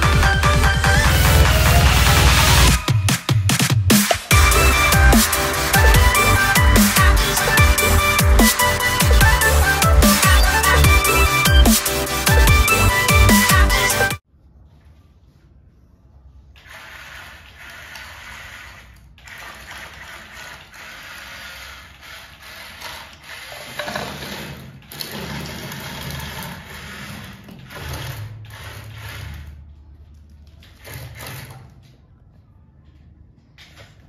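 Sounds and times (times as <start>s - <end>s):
toy motor whirring: 16.6s - 29.5s
wheels rolling over stone and sand: 16.6s - 29.8s.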